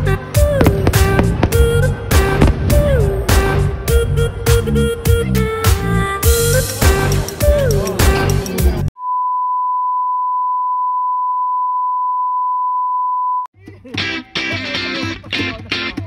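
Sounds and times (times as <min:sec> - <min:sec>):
background music: 0:00.0 - 0:08.9, 0:13.6 - 0:16.0
guitar-led music: 0:13.6 - 0:16.0.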